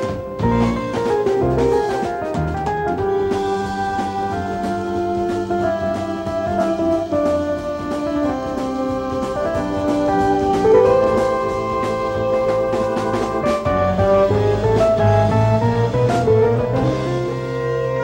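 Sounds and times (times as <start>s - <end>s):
bass: 0.0s - 18.0s
drums: 0.0s - 18.0s
keyboard lead melody: 0.0s - 18.0s.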